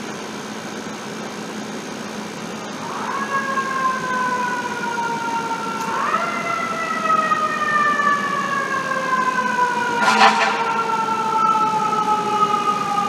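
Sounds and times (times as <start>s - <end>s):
fire truck siren wailing: 2.6s - 13.0s.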